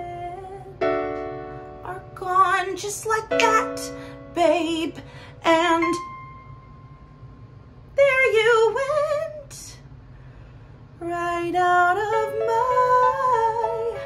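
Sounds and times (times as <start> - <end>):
woman singing: 0.0 - 0.9, 1.8 - 6.1, 8.0 - 9.8, 11.0 - 14.0
piano backing track: 0.0 - 7.4, 11.8 - 14.0
singer breath: 5.0 - 5.4, 10.0 - 11.0.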